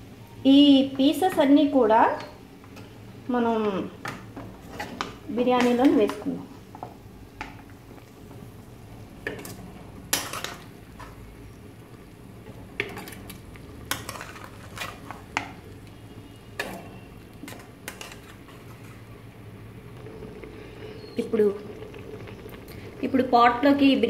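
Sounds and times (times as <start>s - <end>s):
low steady hum: 0.0s - 24.0s
spatula scraping and knocking metal pan: 13.9s - 15.5s.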